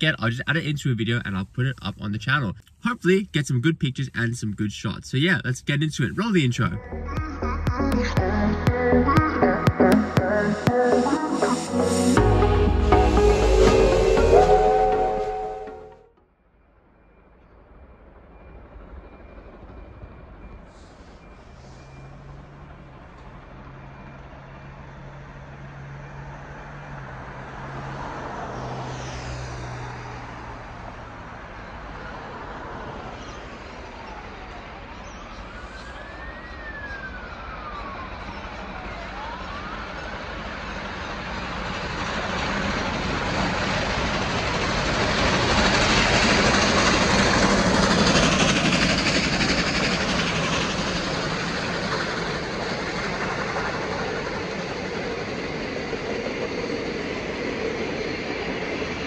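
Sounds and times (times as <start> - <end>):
steam train approaching: 2.8 - 16.1, 16.8 - 59.0
siren wailing: 6.8 - 16.1, 33.8 - 40.7.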